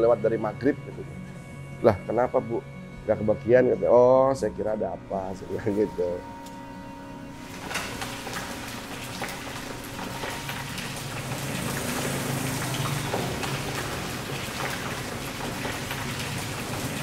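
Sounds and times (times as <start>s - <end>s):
deep-frying oil sizzling: 7.4s - 17.0s.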